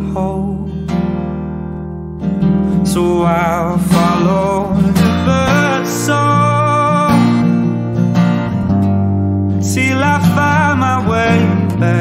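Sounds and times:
man singing: 0.0 - 1.2, 2.7 - 8.2, 9.6 - 12.0
strummed acoustic guitar: 0.0 - 12.0.

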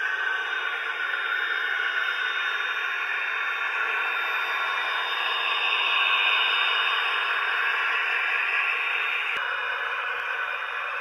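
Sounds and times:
model locomotive diesel sound: 0.0 - 11.0.

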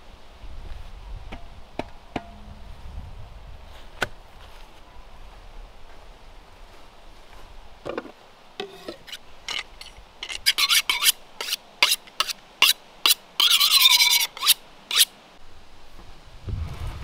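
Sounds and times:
knife scraping on honing steel: 8.6 - 15.1.

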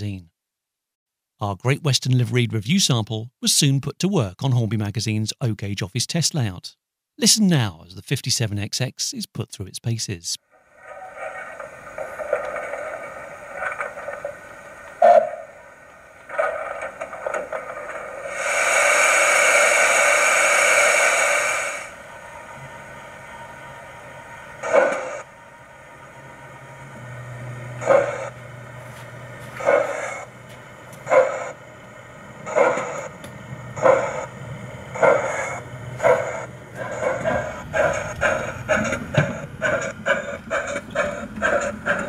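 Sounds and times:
steam locomotive exhaust chuffs: 10.5 - 42.0
steam hiss: 16.4 - 22.1, 24.6 - 25.2, 34.9 - 42.0.

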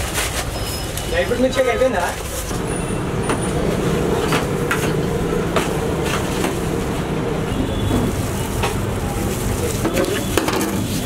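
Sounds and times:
low mechanical rumble: 2.4 - 11.0.

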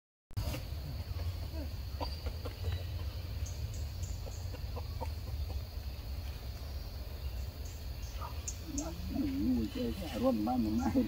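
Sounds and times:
faint animal clucking calls: 1.1 - 6.2.

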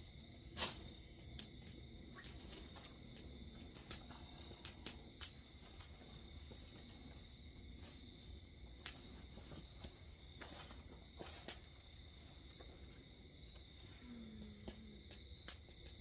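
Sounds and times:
wood fire crackling: 0.0 - 16.0
sharp pops of fire: 0.3 - 6.0, 8.7 - 12.0, 14.5 - 16.0.

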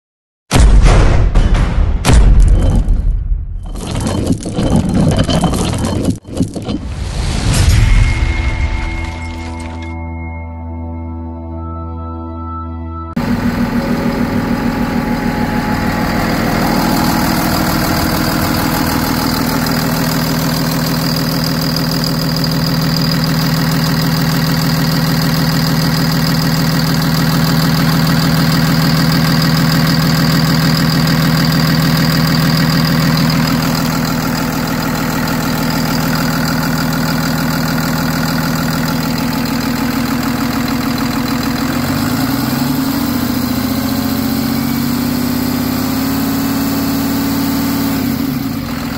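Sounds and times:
diesel engine idling: 13.2 - 48.9.

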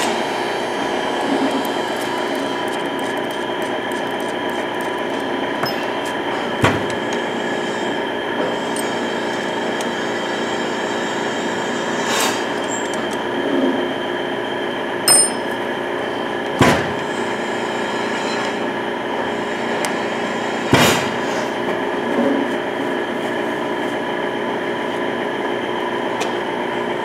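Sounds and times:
workshop machinery humming: 0.0 - 27.0
metal clinks and knocks: 5.6 - 5.9, 15.1 - 15.5.

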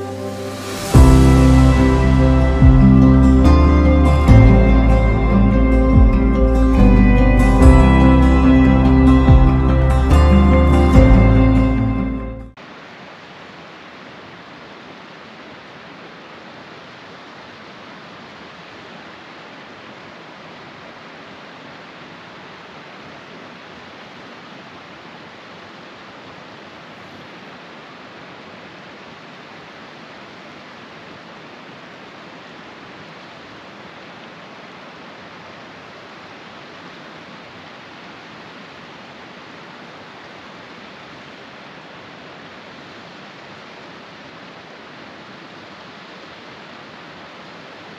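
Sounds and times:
creek rushing over rocks: 12.6 - 47.9.

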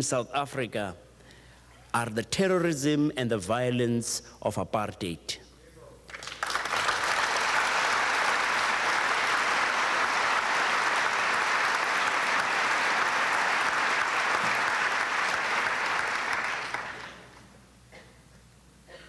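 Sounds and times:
large audience applauding: 6.1 - 17.5.

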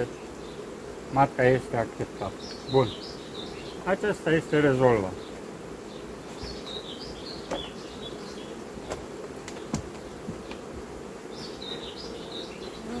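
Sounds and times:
honeybees buzzing: 0.0 - 13.0
bird chirping: 2.2 - 4.0, 4.9 - 10.6, 11.2 - 13.0
hive lid knocking: 6.4 - 7.9, 8.8 - 11.6.

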